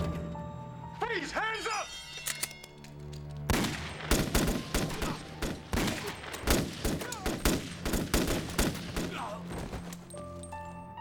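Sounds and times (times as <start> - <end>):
rapid rifle gunfire: 3.5 - 9.2.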